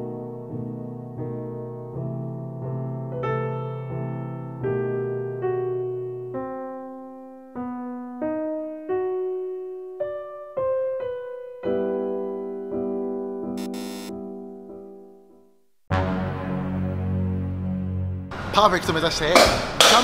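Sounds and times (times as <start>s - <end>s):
solo piano music: 0.0s - 15.7s.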